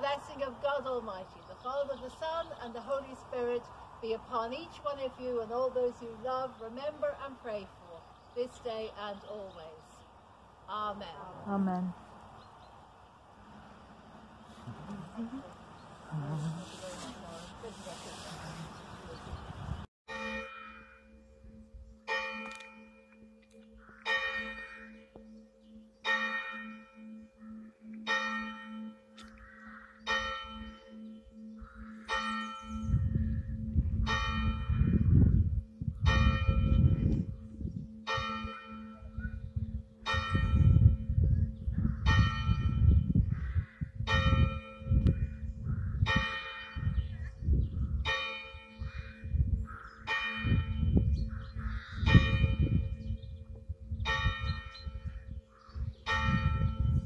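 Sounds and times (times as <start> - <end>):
church bell tolling: 20.1 - 29.2, 30.0 - 33.3, 34.1 - 35.1, 36.1 - 37.0, 38.0 - 39.2, 46.1 - 47.0, 48.0 - 49.3, 50.0 - 51.0, 56.1 - 57.0.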